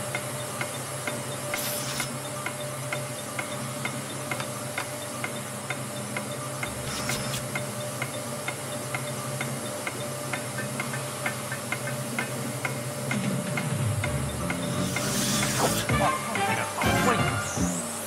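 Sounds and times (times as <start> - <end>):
countdown clock ticking: 7.6 - 17.6
vacuum cleaner running: 14.8 - 18.0.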